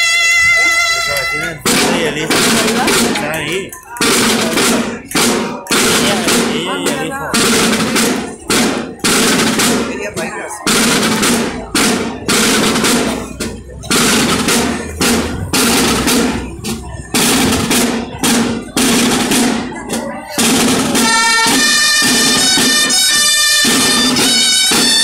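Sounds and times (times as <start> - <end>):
snare drums playing rolls: 0.0 - 25.0.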